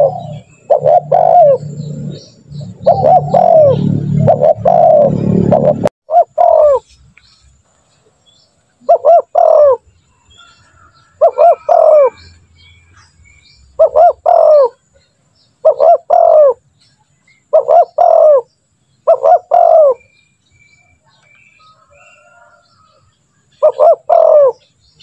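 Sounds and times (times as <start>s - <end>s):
dove cooing: 0.0s - 6.9s, 8.8s - 12.3s, 13.8s - 14.8s, 15.6s - 16.6s, 17.5s - 20.1s, 23.5s - 24.8s.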